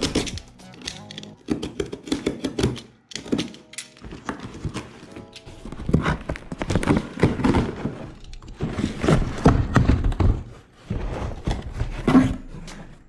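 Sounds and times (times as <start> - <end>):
cardboard flaps knocking and scraping: 4.1 - 12.6.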